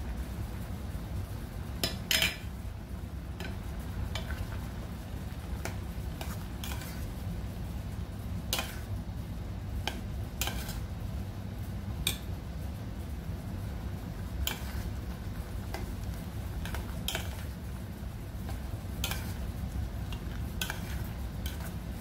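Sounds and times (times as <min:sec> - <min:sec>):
metal spoon scraping pot: 0:06.2 - 0:07.0.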